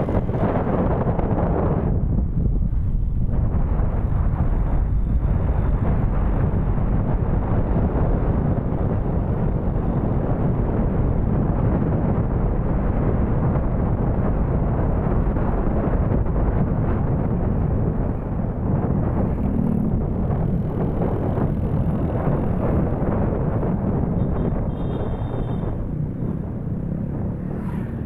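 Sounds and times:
motorcycle road rumble: 0.0 - 28.0
wind buffeting: 0.0 - 28.0.

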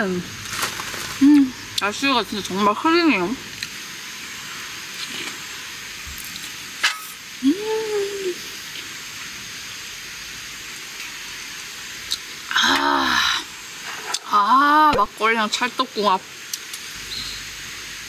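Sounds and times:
egg batter sizzling in a pan: 0.0 - 18.0
person humming: 7.4 - 8.5, 12.5 - 13.5.

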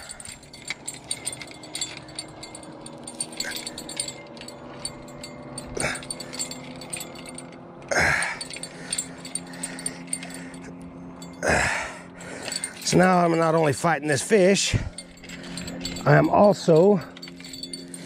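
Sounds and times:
steady low hum: 0.0 - 18.0
breathy huffs: 7.9 - 10.7, 11.4 - 12.8.

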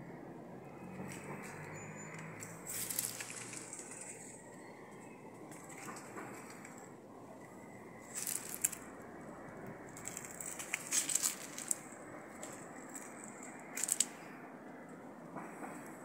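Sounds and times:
footsteps on dry leaves: 2.4 - 4.4, 8.1 - 8.9, 10.0 - 14.1.

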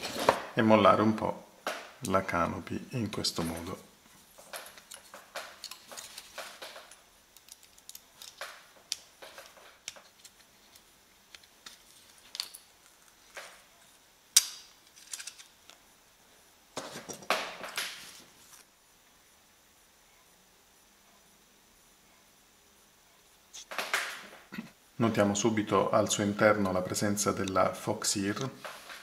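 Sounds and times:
scraping and rustling: 3.4 - 14.0.

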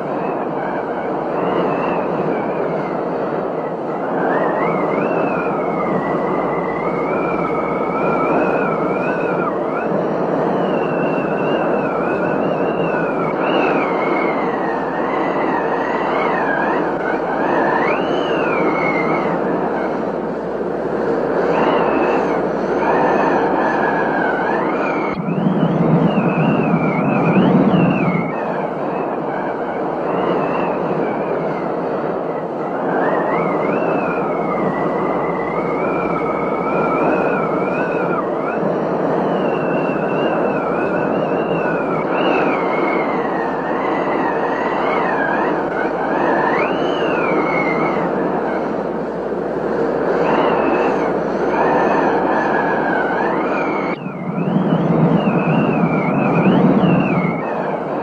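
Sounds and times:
wind whistling: 0.0 - 58.0.

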